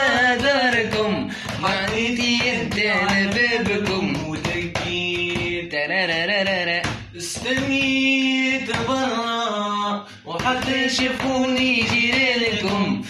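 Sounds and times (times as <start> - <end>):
man singing: 0.0 - 13.0.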